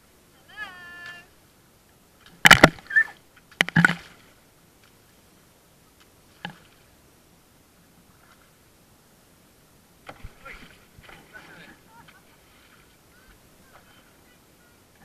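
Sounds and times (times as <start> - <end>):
paddle knocks and splashes: 2.3 - 4.3, 10.0 - 13.0.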